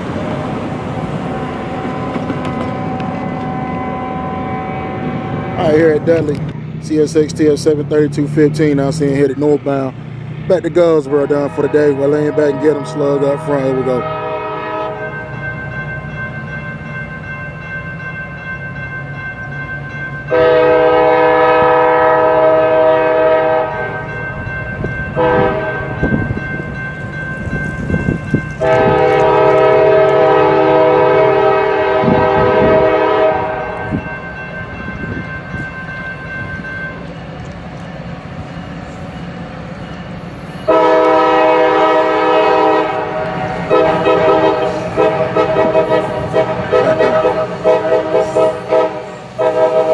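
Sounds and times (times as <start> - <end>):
diesel train rumble: 0.0 - 49.9
locomotive air horn blasts: 1.6 - 6.2, 11.4 - 15.3, 20.3 - 24.1, 25.2 - 26.0, 28.6 - 34.2, 40.7 - 49.9.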